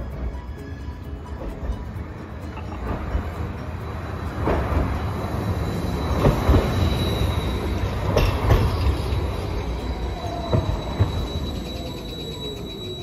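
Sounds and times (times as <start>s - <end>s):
tram rumbling on street track: 0.0s - 13.0s
thin high whine: 3.6s - 13.0s.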